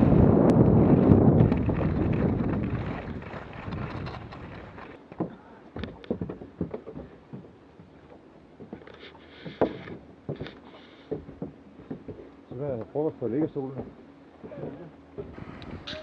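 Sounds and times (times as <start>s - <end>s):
wind rushing over microphone: 0.0s - 5.0s, 15.2s - 16.0s
ski boots on wooden decking: 2.3s - 16.0s.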